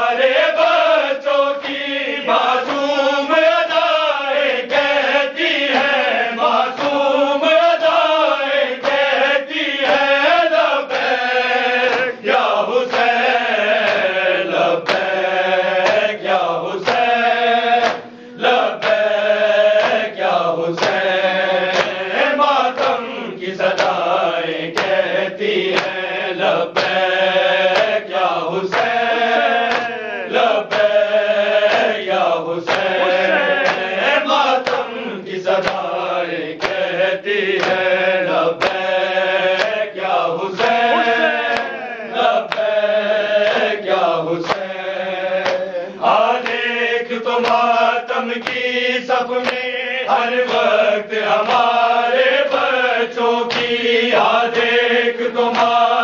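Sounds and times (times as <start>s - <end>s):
men chanting a lament: 0.0s - 56.0s
palms slapping chests: 27.6s - 31.0s, 31.6s - 35.0s.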